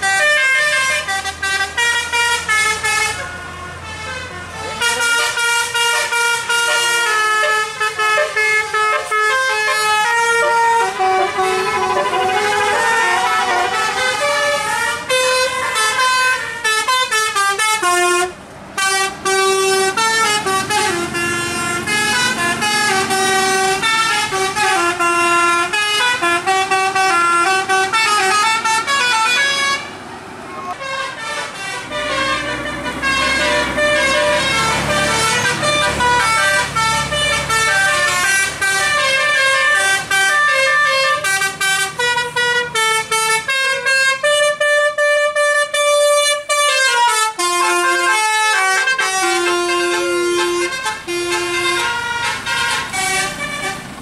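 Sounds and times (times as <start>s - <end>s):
bus engine rumbling: 0.0s - 54.0s
bus horn playing melodic tunes: 0.0s - 54.0s.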